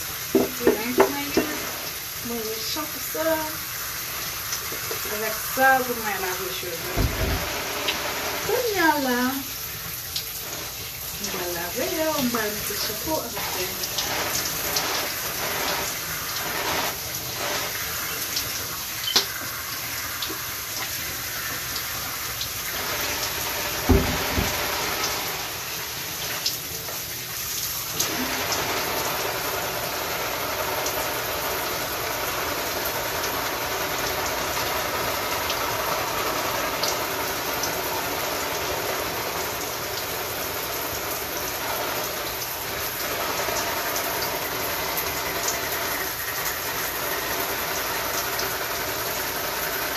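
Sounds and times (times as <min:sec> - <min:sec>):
shower spray splashing: 0:00.0 - 0:49.9
sharp knock: 0:00.4 - 0:01.5
dull thump: 0:07.0 - 0:07.5, 0:23.9 - 0:24.6.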